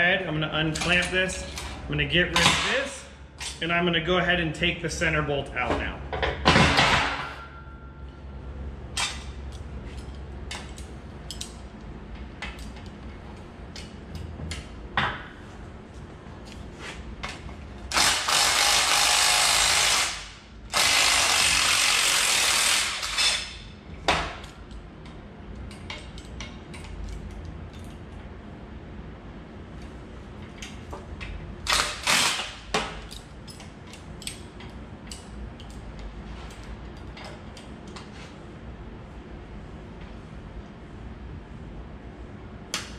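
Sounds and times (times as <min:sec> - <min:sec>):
power tool bursts: 0:17.9 - 0:23.5, 0:31.7 - 0:32.6.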